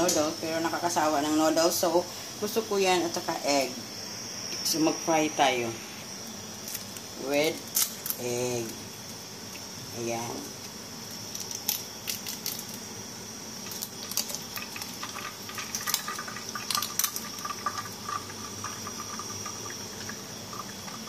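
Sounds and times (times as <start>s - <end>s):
egg sizzling in oil: 0.4s - 21.0s
oil popping and crackling: 6.6s - 12.9s, 13.6s - 21.0s.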